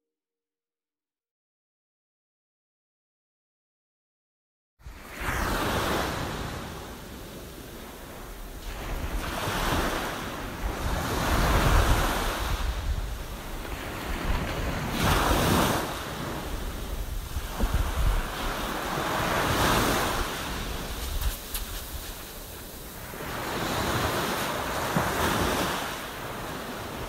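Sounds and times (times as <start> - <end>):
surf washing ashore: 4.8 - 27.0
wind buffeting microphone: 5.6 - 27.0.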